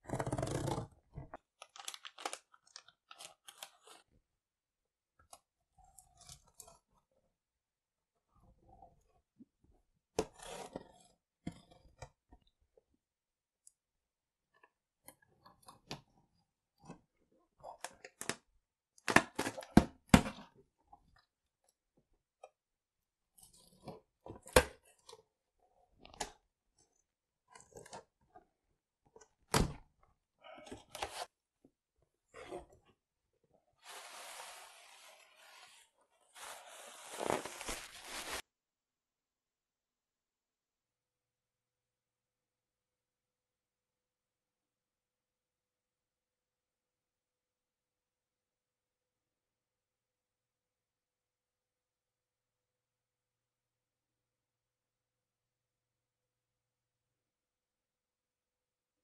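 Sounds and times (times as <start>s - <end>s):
cardboard scrapes and knocks: 0.0s - 1.0s, 33.8s - 38.4s
tearing rustling cardboard: 33.8s - 38.4s.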